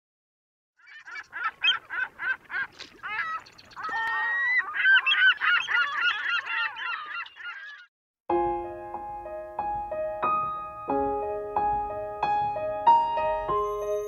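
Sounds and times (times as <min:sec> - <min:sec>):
geese honking: 0:00.8 - 0:07.8.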